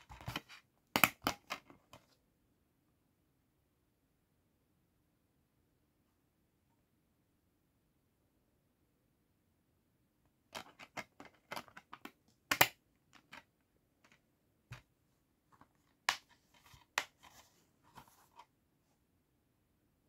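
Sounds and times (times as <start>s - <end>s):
plastic case clicks and snaps: 10.6s - 13.4s.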